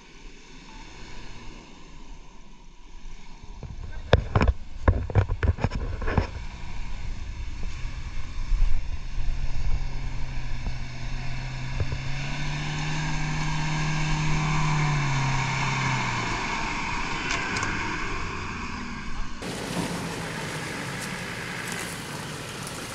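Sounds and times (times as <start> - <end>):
pickup engine driving past: 6.4 - 22.9
tyres and brushing grass: 19.4 - 22.9.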